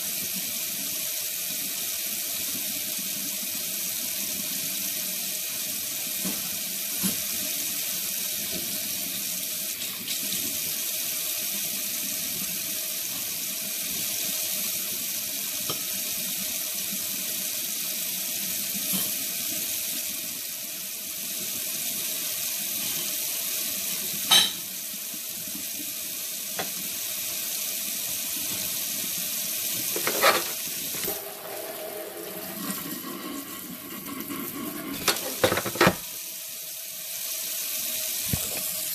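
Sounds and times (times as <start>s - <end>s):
tap water running into sink: 24.0s - 36.2s, 38.1s - 38.9s.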